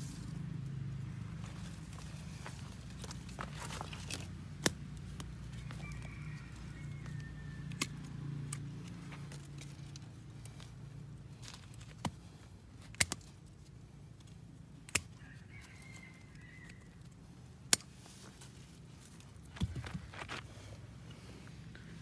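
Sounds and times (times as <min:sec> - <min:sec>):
distant rooster crowing: 0:05.4 - 0:08.4, 0:15.1 - 0:17.2.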